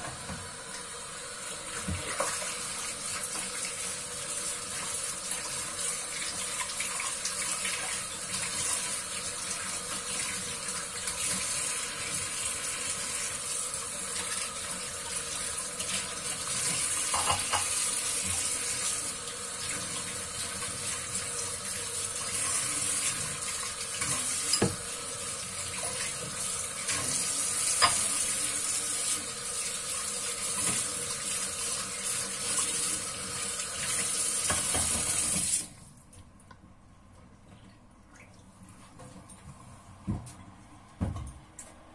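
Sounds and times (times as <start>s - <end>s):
tap running into steel sink: 16.6s - 17.8s
dishes knocking: 17.1s - 17.8s.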